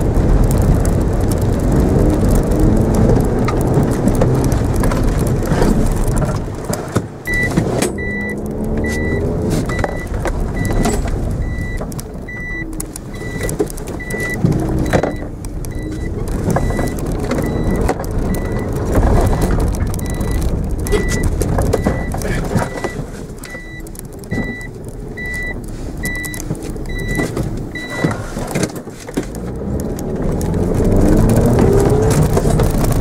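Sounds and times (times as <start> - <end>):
car engine revving: 0.0 - 33.0
road noise inside car: 0.0 - 33.0
electronic warning chime beeping: 7.3 - 18.7, 20.0 - 28.2.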